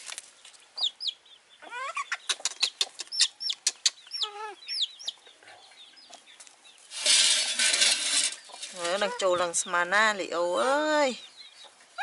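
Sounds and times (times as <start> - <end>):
chick peeping in distress: 0.8 - 5.6.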